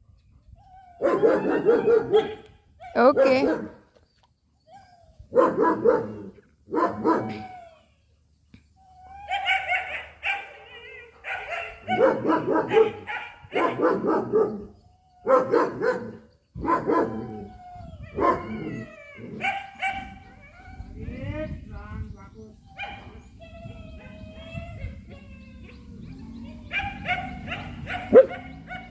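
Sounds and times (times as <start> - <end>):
dog barking: 1.0 - 2.4, 3.2 - 3.8, 5.3 - 7.4, 9.3 - 10.6, 11.2 - 14.6, 15.3 - 17.1, 18.2 - 18.5, 19.4 - 20.2, 26.7 - 28.9.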